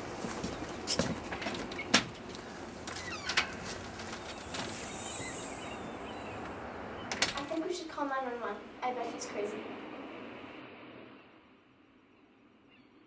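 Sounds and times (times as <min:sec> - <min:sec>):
short hiss: 0:04.4 - 0:05.8.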